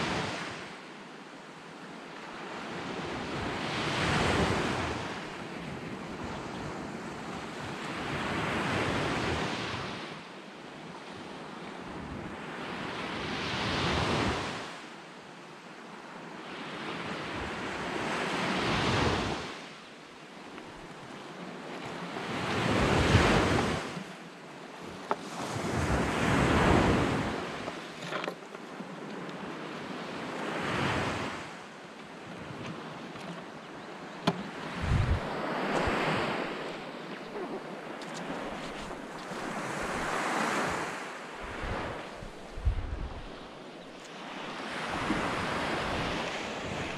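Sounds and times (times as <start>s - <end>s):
waves on pebble beach: 0.0s - 0.6s, 24.8s - 28.1s, 34.4s - 42.5s
wind on microphone: 34.3s - 43.6s.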